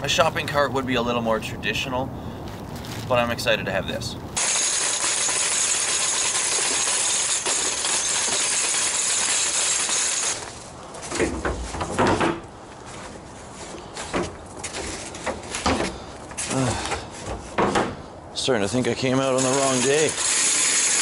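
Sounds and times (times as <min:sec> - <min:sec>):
metal cart rolling over pavement: 0:02.7 - 0:12.0.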